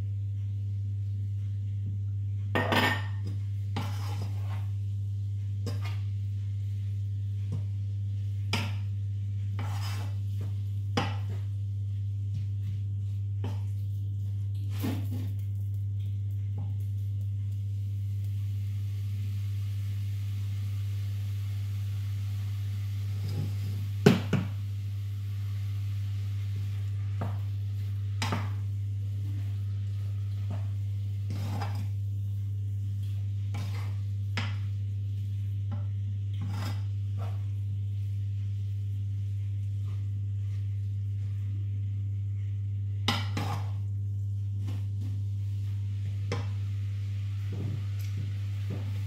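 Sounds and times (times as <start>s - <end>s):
steady low hum: 0.0s - 49.0s
wooden spoon stirring mince: 3.7s - 5.0s, 9.4s - 11.4s, 26.3s - 35.8s.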